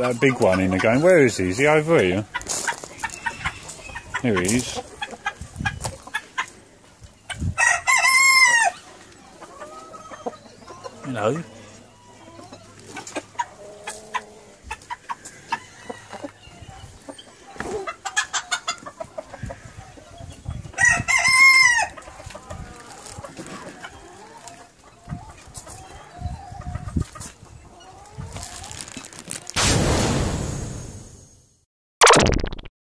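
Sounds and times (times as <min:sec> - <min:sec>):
chickens clucking: 0:00.0 - 0:29.1
rooster crowing: 0:07.6 - 0:08.8.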